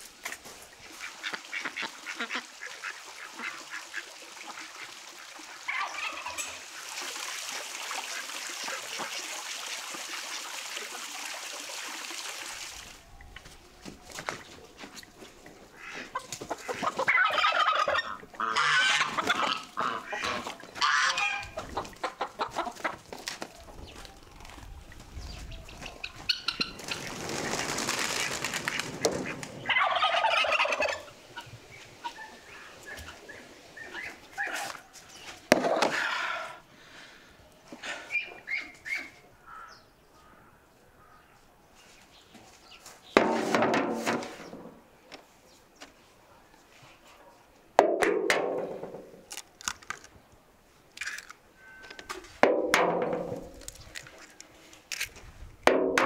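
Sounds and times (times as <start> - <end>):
farmyard fowl calling: 5.6 - 6.7, 15.7 - 24.0, 25.6 - 27.0, 29.2 - 34.9, 35.9 - 36.6.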